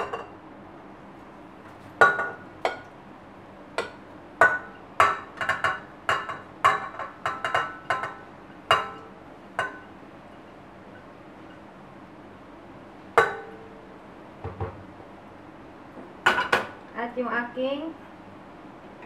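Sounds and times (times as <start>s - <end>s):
ceramic bowl clinking on metal bowl: 2.0s - 2.9s, 3.8s - 9.9s, 13.2s - 13.8s.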